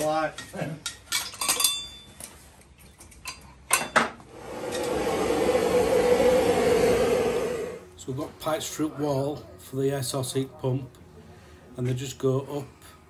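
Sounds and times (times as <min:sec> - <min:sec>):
steady hum: 0:04.2 - 0:08.1.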